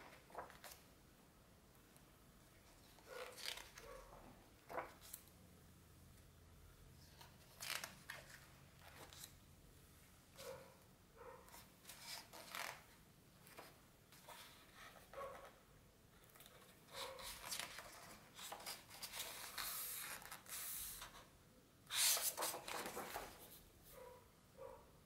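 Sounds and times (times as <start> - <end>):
book pages turning: 2.8 - 4.0, 4.6 - 5.3, 7.2 - 9.4, 16.2 - 21.1, 21.9 - 23.6.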